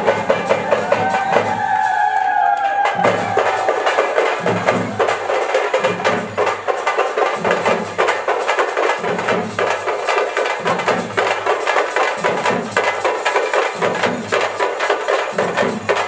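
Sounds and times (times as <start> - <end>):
deeper drum beat: 0.0 - 14.7
drums playing fast strokes: 0.0 - 16.0.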